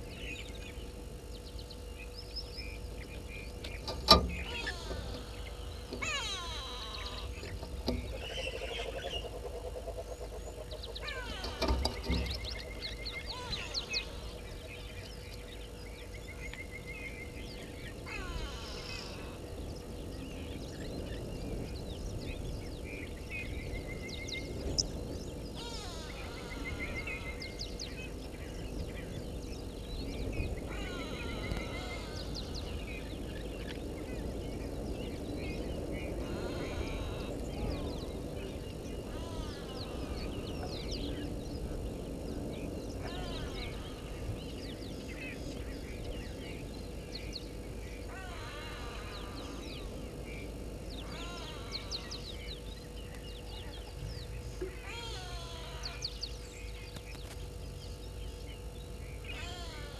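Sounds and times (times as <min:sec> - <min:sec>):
outdoor hiss: 0:00.0 - 0:08.4
birds chirping: 0:00.0 - 0:59.9
faint hum: 0:00.0 - 0:59.9.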